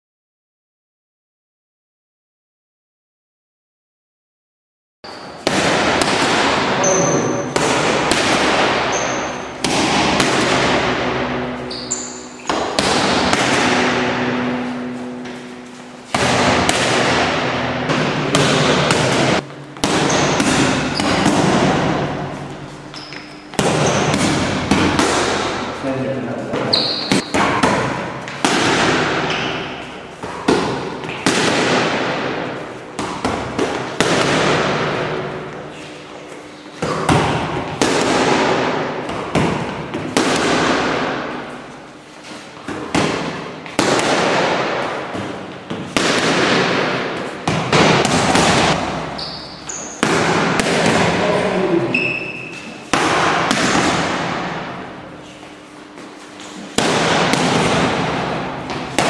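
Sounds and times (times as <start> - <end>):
shoe squeaks on floor: 5.0 - 5.4, 6.8 - 7.5, 8.9 - 9.5, 11.6 - 12.5, 20.0 - 21.2, 22.8 - 24.1, 26.6 - 27.3, 49.1 - 50.0, 51.8 - 52.8
punches hitting focus mitts: 5.4 - 9.0, 9.6 - 11.4, 12.5 - 14.5, 16.1 - 22.3, 23.5 - 25.7, 27.1 - 35.4, 36.8 - 41.4, 42.7 - 49.2, 50.0 - 51.8, 52.9 - 54.8, 56.7 - 59.0.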